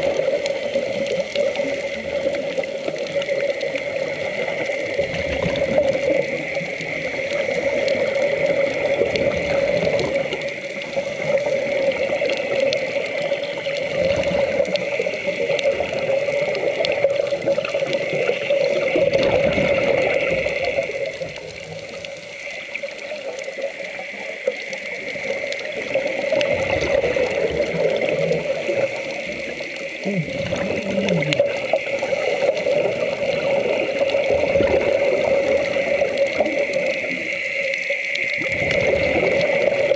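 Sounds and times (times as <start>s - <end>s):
aquarium water trickling and bubbling: 0.0s - 39.9s.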